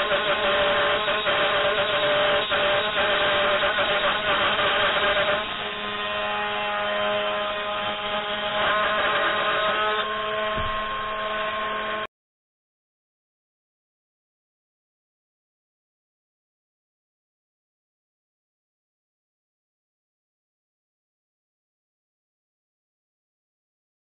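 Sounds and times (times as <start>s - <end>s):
router spindle whine: 0.0s - 12.1s.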